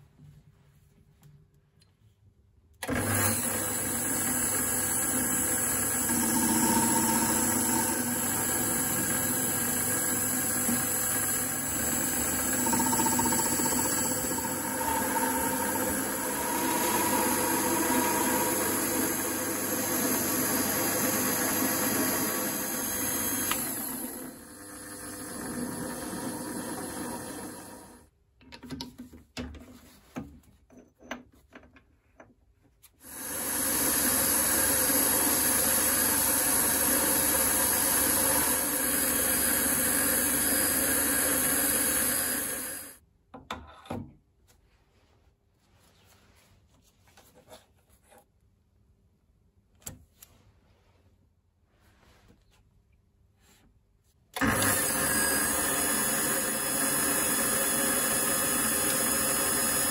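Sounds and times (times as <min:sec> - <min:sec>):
lathe whining while cutting metal: 0:02.9 - 0:28.0, 0:33.1 - 0:42.9, 0:54.4 - 0:59.9.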